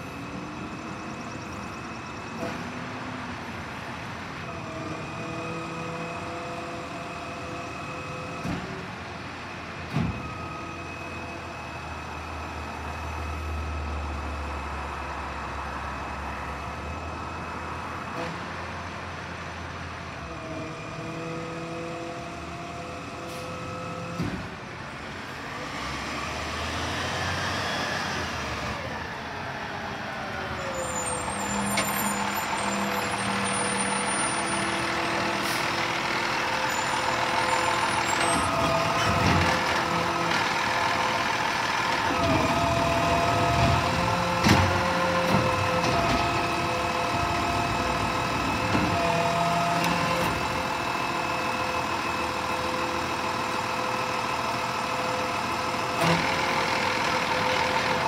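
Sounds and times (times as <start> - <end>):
garbage truck diesel engine: 0.0 - 58.0.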